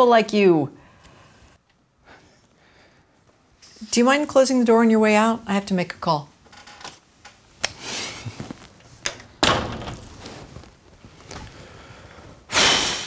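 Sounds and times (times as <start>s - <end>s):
door closing thud: 9.1s - 10.2s
loud burst of noise: 12.5s - 13.0s.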